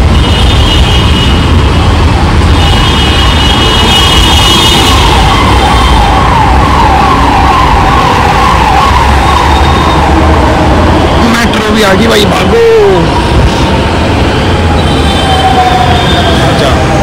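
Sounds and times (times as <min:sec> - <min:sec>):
low rumble of traffic: 0:00.0 - 0:17.0
emergency siren yelping: 0:04.1 - 0:13.9, 0:14.7 - 0:17.0.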